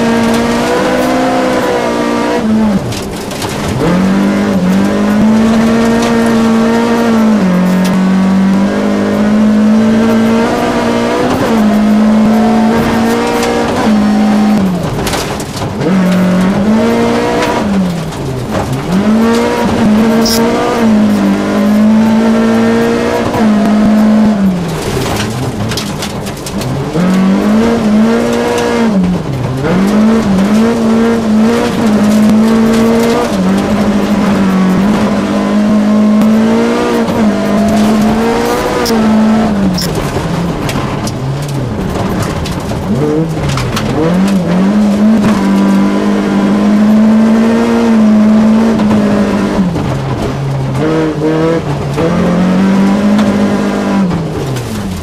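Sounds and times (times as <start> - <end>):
gravel rattling against a car: 0.0 - 55.0
rally car engine revving: 0.0 - 55.0.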